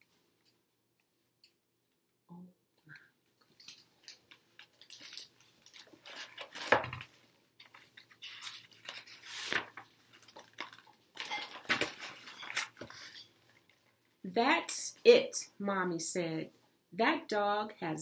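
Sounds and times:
metal bangles clinking: 0:03.4 - 0:05.9
paper rustling: 0:04.6 - 0:13.8
book page turning: 0:04.7 - 0:13.2.

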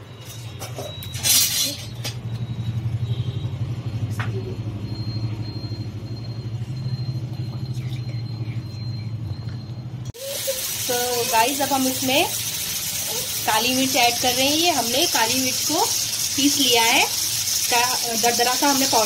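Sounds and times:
gas burner rumbling: 0:10.2 - 0:19.0.

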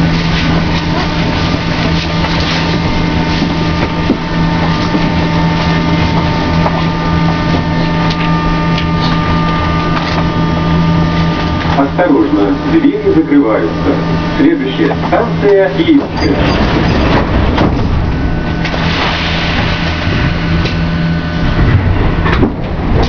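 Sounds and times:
metro car machinery humming: 0:00.0 - 0:23.0.

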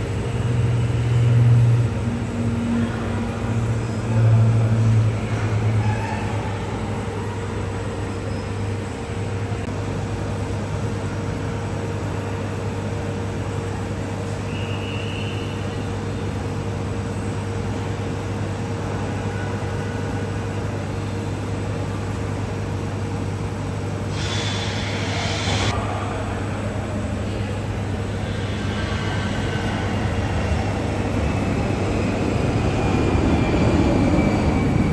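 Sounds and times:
jet engine rumble: 0:22.2 - 0:34.9
hiss: 0:24.1 - 0:25.8, 0:28.2 - 0:30.0.

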